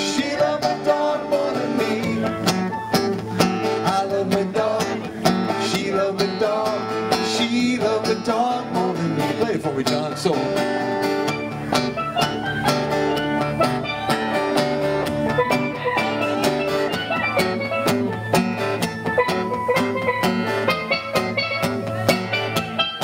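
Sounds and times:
acoustic guitar strumming: 0:00.0 - 0:23.0
steel pan melody: 0:10.8 - 0:23.0.

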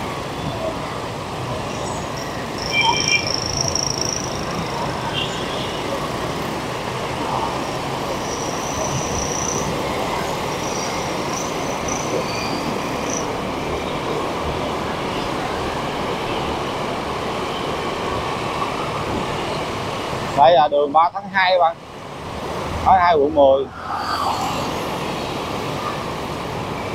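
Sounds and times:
traffic engines and tyres: 0:00.0 - 0:26.9
short high-pitched tones: 0:02.6 - 0:04.4.

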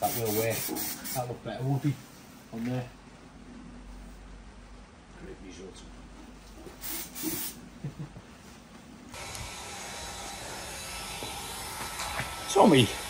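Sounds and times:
aerosol can hissing: 0:00.0 - 0:01.2, 0:06.8 - 0:07.6
hair dryer running: 0:09.2 - 0:13.0.

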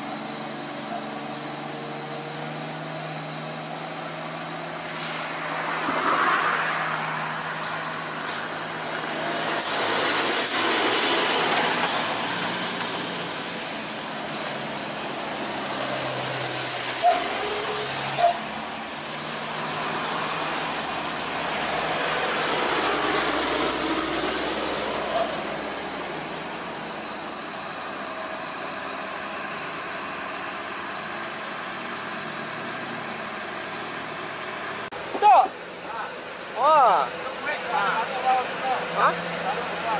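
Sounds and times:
diesel trucks driving: 0:00.0 - 0:39.9.

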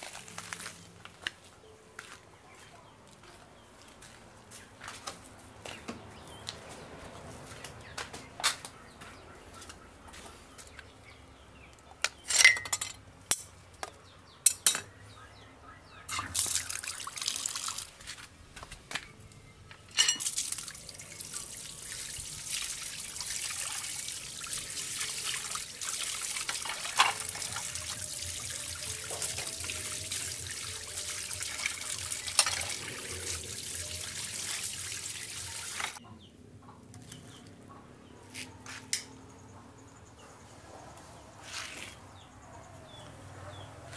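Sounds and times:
clinks and knocks: 0:12.0 - 0:13.5, 0:14.4 - 0:14.9, 0:19.9 - 0:20.3
tap water running: 0:16.1 - 0:18.1, 0:20.2 - 0:36.0
water splashing: 0:16.1 - 0:18.2, 0:20.2 - 0:36.0.

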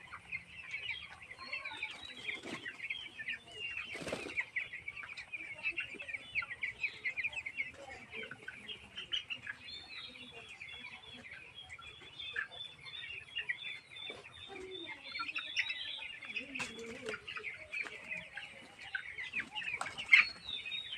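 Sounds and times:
chicks peeping: 0:00.0 - 0:20.9.

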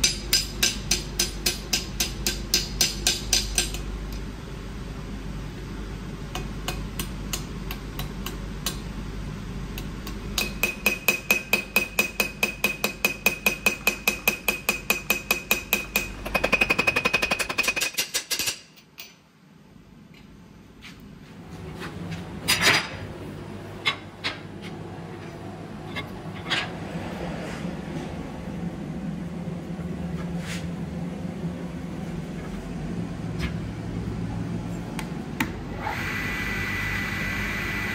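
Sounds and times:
hammer striking metal: 0:00.0 - 0:03.8, 0:10.0 - 0:19.2.

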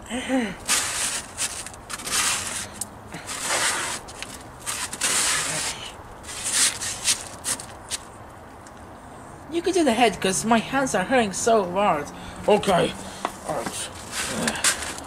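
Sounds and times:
hand scraping dry snow: 0:00.6 - 0:08.0, 0:13.5 - 0:15.0.

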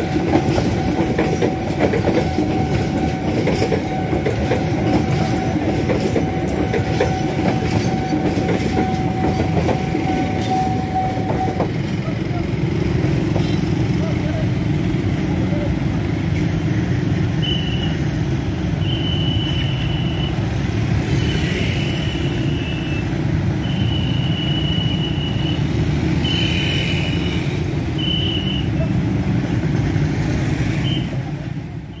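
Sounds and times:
motorcycle traffic rumble: 0:02.4 - 0:32.0
high steady horn tone: 0:23.6 - 0:28.7.

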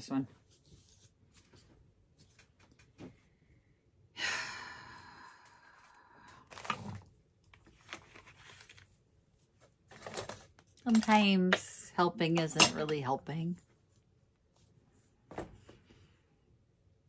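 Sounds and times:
person sighing: 0:04.2 - 0:06.4.

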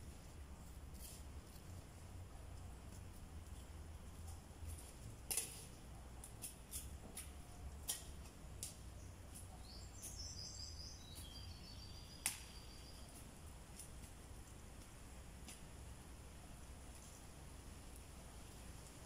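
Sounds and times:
hands snapping among plants: 0:05.0 - 0:10.2, 0:12.1 - 0:12.7.

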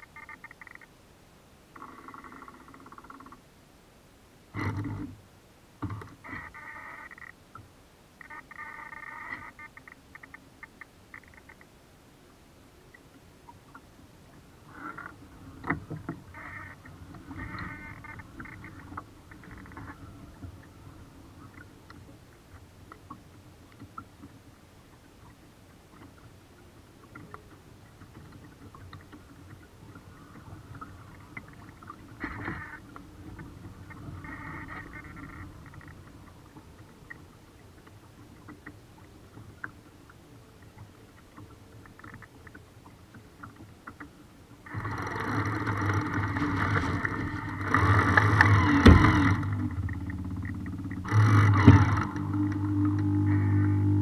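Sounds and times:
water lapping against hull: 0:04.5 - 0:05.2, 0:12.8 - 0:54.0.

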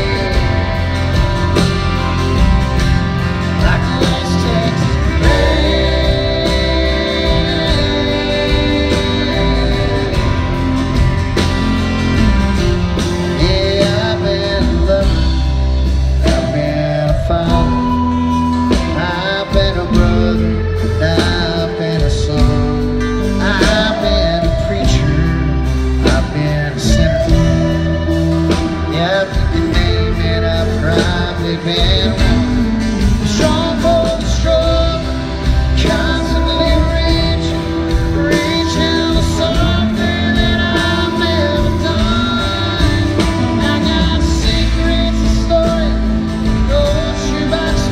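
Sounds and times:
drums: 0:00.0 - 0:47.9
electric guitar: 0:00.0 - 0:47.9
man singing: 0:00.0 - 0:47.9
strummed acoustic guitar: 0:00.0 - 0:47.9.

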